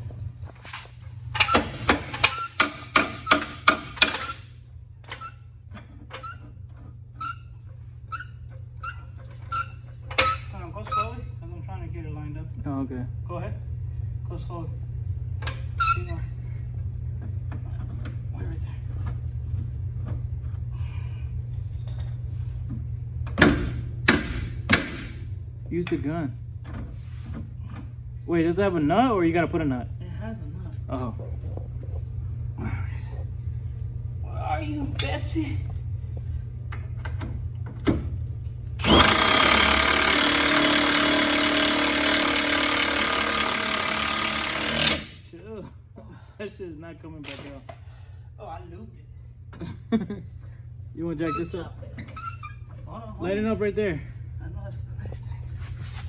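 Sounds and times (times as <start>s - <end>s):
steady low hum: 0.0s - 56.0s
impact wrench hammering: 1.4s - 4.4s, 23.3s - 25.2s, 38.8s - 45.2s.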